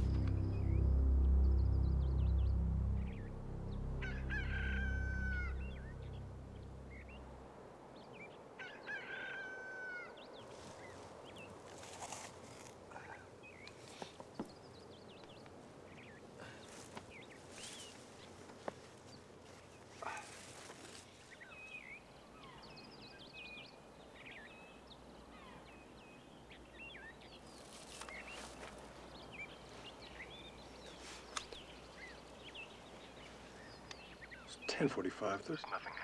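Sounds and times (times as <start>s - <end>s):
short rustle: 16.7s - 21.4s.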